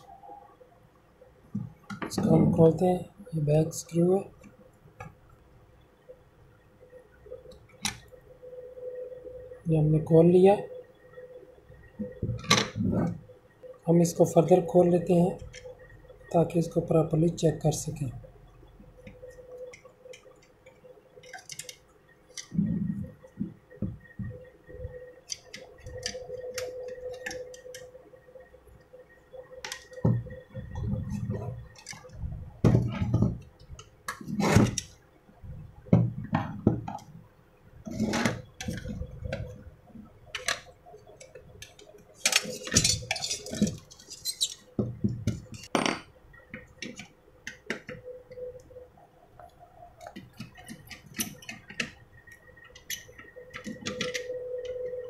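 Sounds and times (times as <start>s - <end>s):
metallic clicks and knocks: 40.3s - 48.0s.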